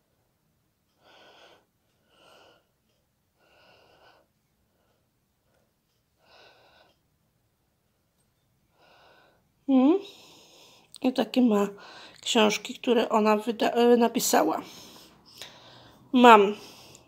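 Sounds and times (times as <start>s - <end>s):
woman breathing: 0.9s - 7.1s, 8.6s - 11.0s, 11.7s - 12.2s, 14.6s - 17.0s.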